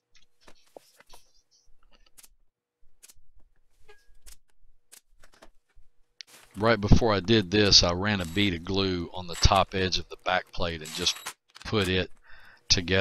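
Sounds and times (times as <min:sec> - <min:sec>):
wooden parts and tools clicking: 0:09.2 - 0:09.9.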